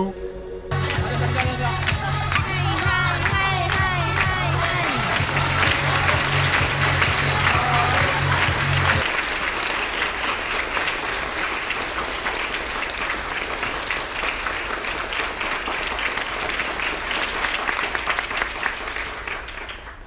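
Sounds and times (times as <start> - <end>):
thumping music beat: 0.7 - 9.0
audience applause: 0.7 - 20.0.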